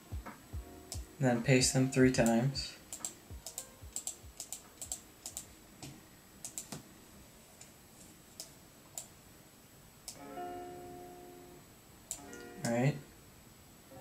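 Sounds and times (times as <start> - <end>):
laptop keys clicking: 2.2 - 6.8.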